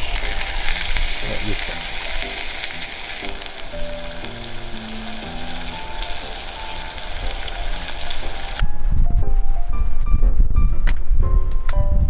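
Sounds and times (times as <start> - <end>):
fish sizzling in a skillet: 0.0 - 8.6
soft background music: 0.0 - 12.0
music with heavy low end: 0.2 - 12.0.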